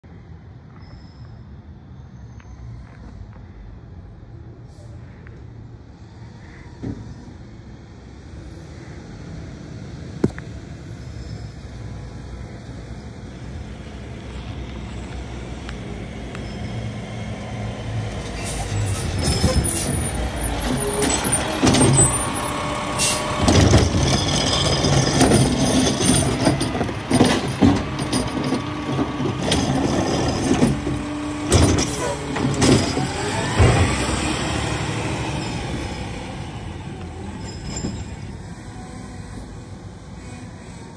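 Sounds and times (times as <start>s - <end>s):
diesel engine running: 14.0s - 38.8s
air brakes hissing: 18.3s - 23.4s
metal clanks and bangs: 23.2s - 34.2s.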